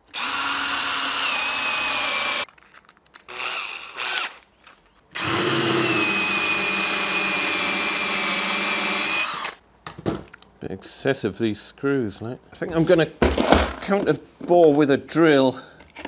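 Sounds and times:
cordless drill boring into wood: 0:00.1 - 0:02.5, 0:03.3 - 0:04.4, 0:05.2 - 0:09.6.

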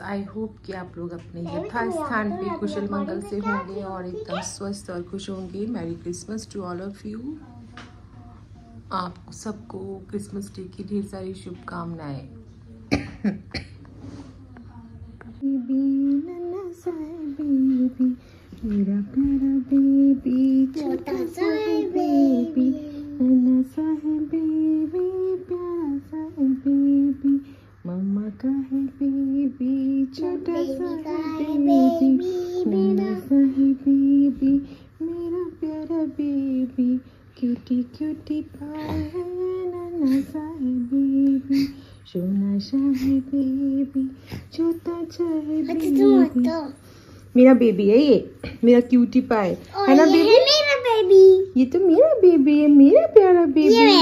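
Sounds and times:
woman humming: 0:15.4 - 0:16.2, 0:31.7 - 0:46.4.

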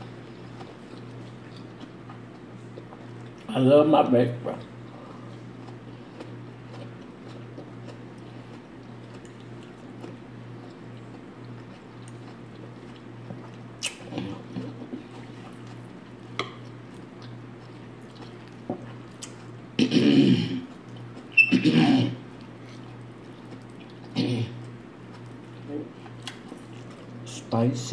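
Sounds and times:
person chewing food: 0:00.0 - 0:03.5, 0:04.6 - 0:27.3
steady low hum: 0:00.0 - 0:27.9
short sharp mouth smacks: 0:13.8 - 0:14.2.

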